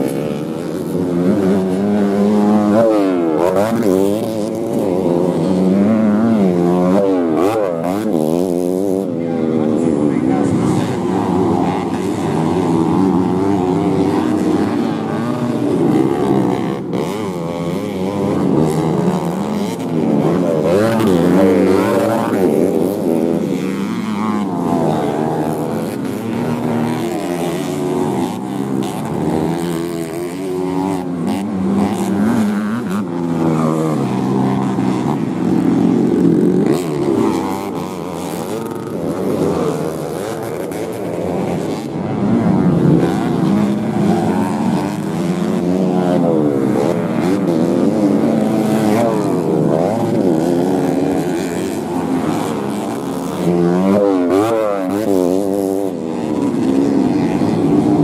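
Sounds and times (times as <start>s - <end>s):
motorcycle engines revving: 0.0s - 58.0s.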